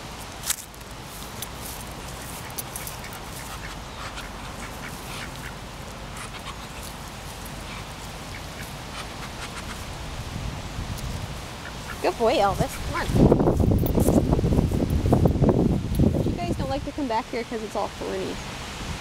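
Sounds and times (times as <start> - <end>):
ducks calling: 1.8 - 10.0, 11.4 - 14.2.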